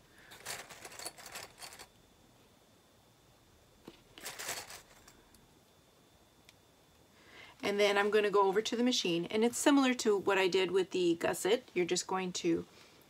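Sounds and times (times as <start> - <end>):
strap rustling and scraping: 0.3 - 1.9, 3.9 - 5.1.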